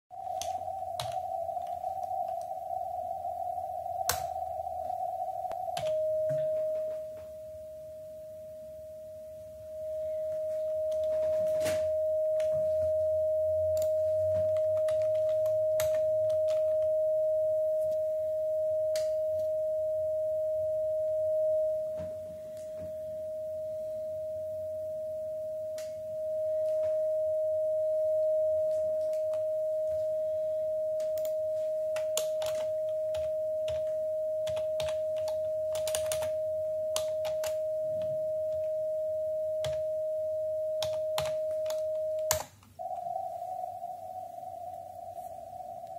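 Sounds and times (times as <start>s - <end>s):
steady radio tone: 0.1s - 7.3s, 42.8s - 45.9s.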